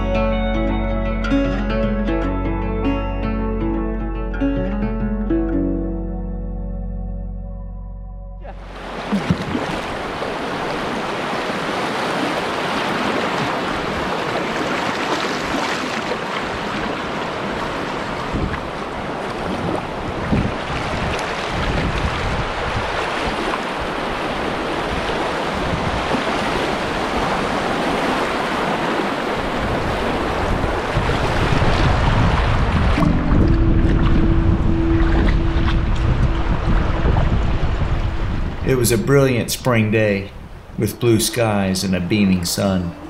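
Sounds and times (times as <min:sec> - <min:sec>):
paddle strokes splashing: 0:08.5 - 0:38.1
rushing river water: 0:08.5 - 0:43.0
wind buffeting microphone: 0:16.5 - 0:40.8.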